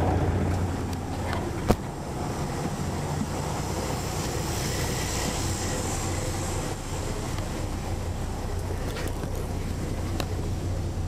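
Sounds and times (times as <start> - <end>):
diesel bus engine humming: 0.0 - 11.0.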